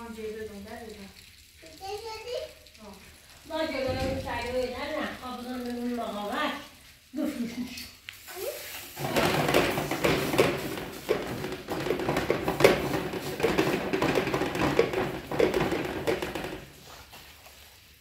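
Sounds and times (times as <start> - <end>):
tapping and clattering: 9.0 - 16.8.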